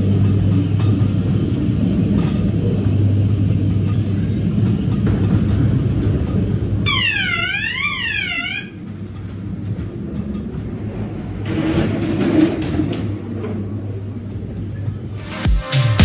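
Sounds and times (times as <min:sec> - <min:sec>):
ride car rumbling on track: 0:00.0 - 0:15.2.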